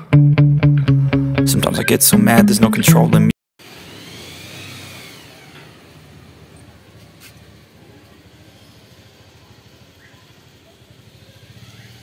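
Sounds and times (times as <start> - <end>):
steady traffic haze: 5.4 - 12.0.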